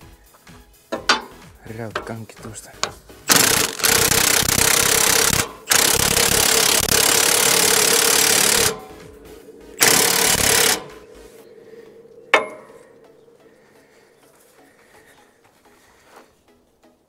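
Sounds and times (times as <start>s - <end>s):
impact wrench hammering: 0.9s - 2.2s, 2.8s - 11.3s, 12.3s - 12.9s
sharp click: 2.8s - 9.2s, 9.8s - 11.0s.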